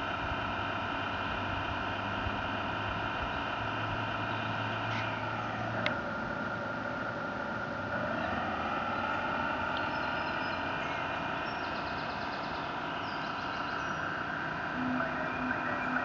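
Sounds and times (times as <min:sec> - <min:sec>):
electric motor whining: 0:03.8 - 0:16.0.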